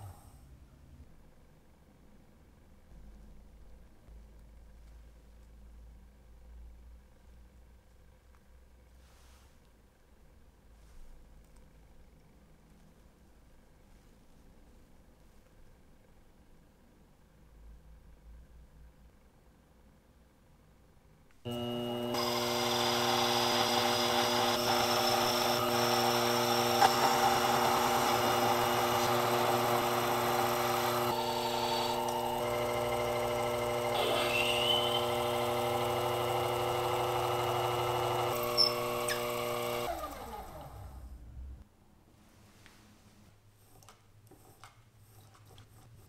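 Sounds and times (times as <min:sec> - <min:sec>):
drill boring into brass: 0:21.5 - 0:40.7
lathe motor whine: 0:21.5 - 0:41.0.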